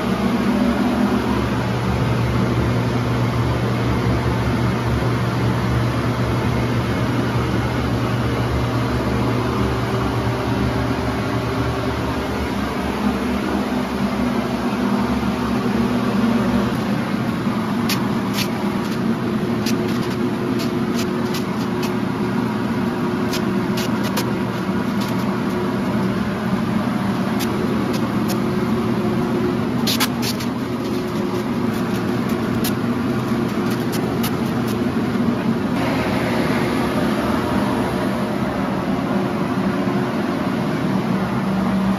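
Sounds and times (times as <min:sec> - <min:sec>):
air blower drone: 0:00.0 - 0:41.9.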